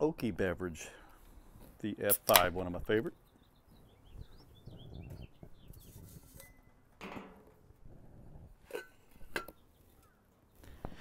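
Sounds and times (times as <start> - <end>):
birds chirping faintly: 0.9 - 6.9, 9.0 - 11.0.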